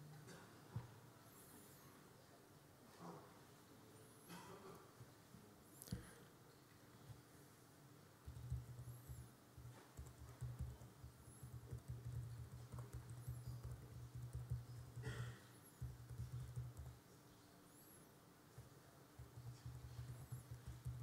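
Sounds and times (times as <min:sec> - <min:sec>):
typing on laptop keyboard: 0:08.2 - 0:17.0, 0:18.6 - 0:21.0.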